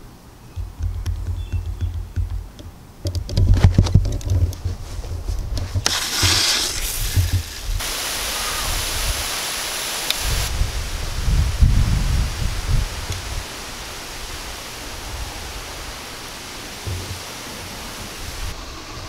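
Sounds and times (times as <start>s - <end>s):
wind rumbling on microphone: 0.6s - 9.4s, 10.2s - 19.0s
water spraying from sprinklers: 5.8s - 19.0s.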